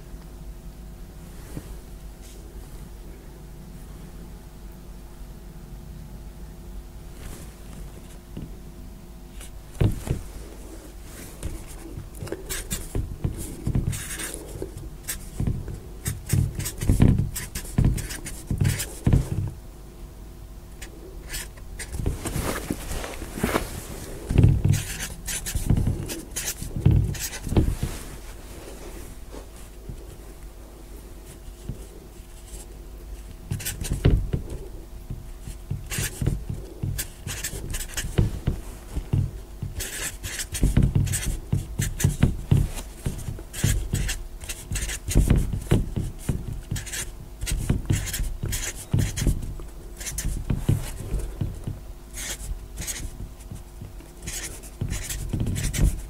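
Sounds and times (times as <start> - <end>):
marker pen scratching on board: 11.3 - 19.5, 20.8 - 28.0, 31.2 - 34.8, 35.4 - 56.0.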